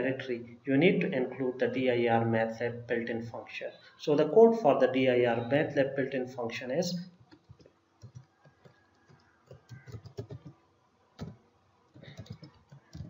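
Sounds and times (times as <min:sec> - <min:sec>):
keyboard typing: 0:07.2 - 0:10.6, 0:11.2 - 0:13.0.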